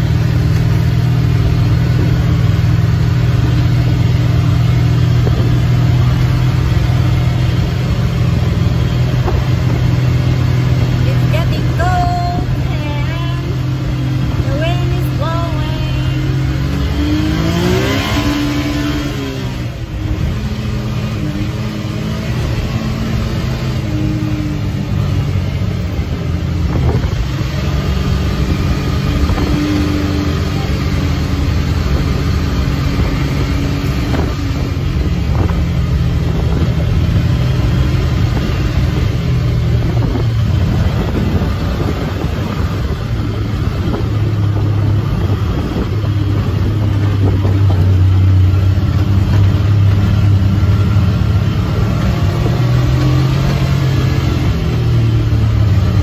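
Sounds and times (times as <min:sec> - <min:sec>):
off-road vehicle engine running: 0:00.0 - 0:56.0.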